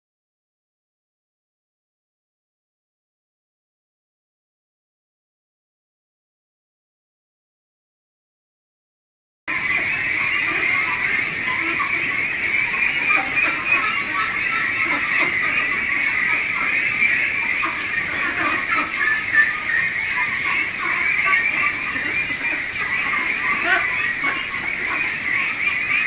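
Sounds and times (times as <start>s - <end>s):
flock of ducks calling: 9.5s - 26.0s.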